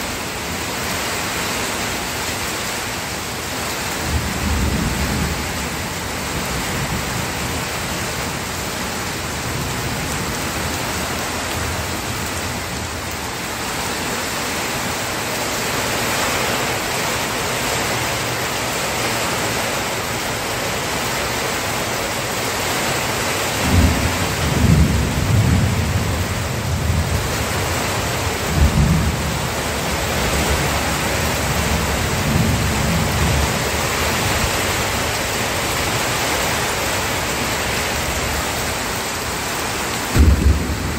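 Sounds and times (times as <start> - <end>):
steady rain falling: 0.0 - 40.9
thunder rumbling: 23.6 - 38.8, 39.6 - 40.9.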